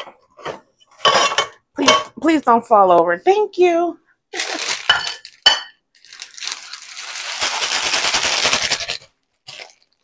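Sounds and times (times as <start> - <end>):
plastic bag crinkling: 4.3 - 10.0.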